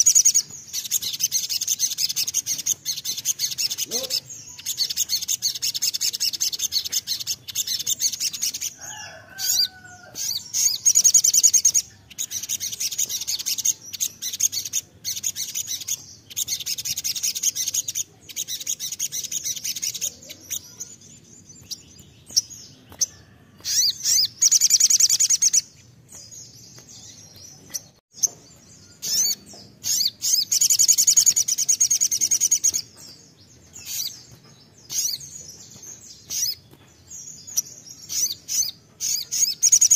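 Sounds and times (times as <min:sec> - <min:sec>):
sunbird twittering song: 0:00.0 - 0:39.9.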